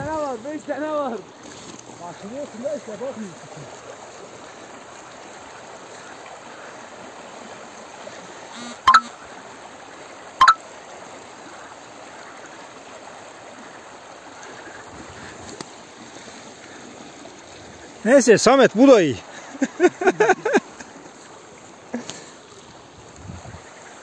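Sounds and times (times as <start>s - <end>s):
stream rushing and splashing: 0.0s - 24.0s.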